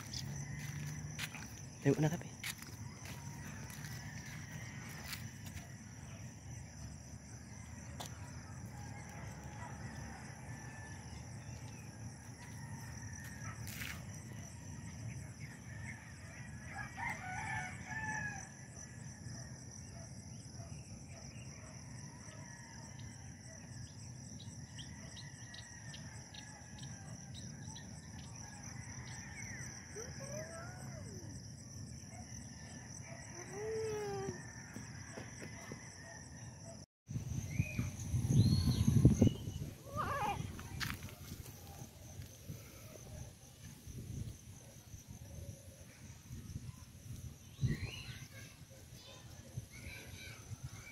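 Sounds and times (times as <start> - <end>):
rooster crowing: 0.0 - 1.5, 2.4 - 5.5, 15.8 - 18.6.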